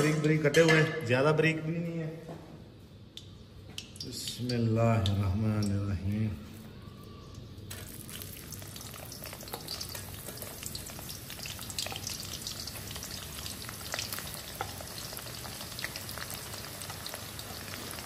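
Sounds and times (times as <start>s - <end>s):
oil popping and crackling: 7.3s - 18.0s
onions sizzling in hot oil: 7.7s - 18.0s.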